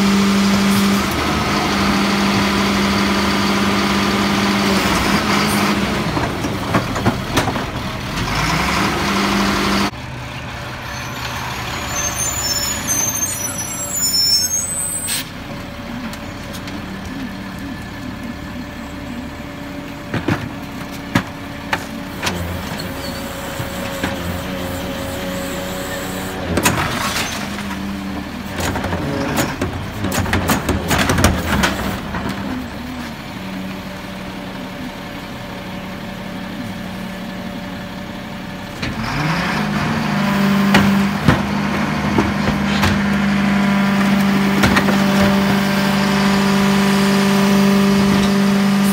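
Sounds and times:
diesel engine idling: 5.2 - 26.6, 27.7 - 40.3.

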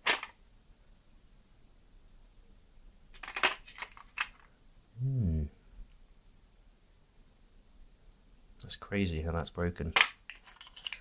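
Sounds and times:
man humming: 5.0 - 5.6
plastic and metal parts clicking: 9.9 - 11.0.

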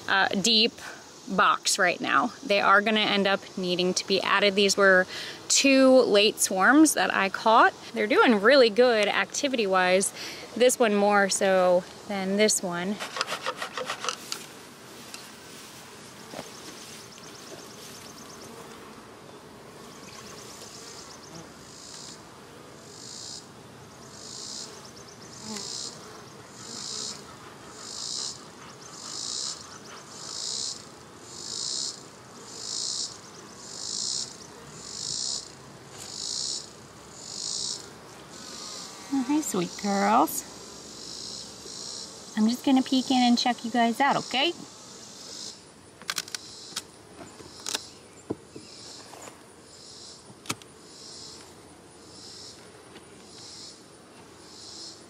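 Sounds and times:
insect chirping: 16.3 - 18.7, 19.9 - 22.2, 22.8 - 55.0.

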